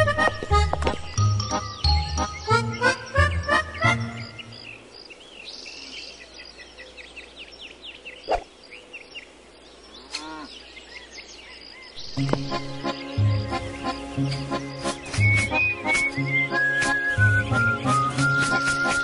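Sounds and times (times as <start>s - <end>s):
light children's music: 0.0s - 4.5s, 12.0s - 19.0s.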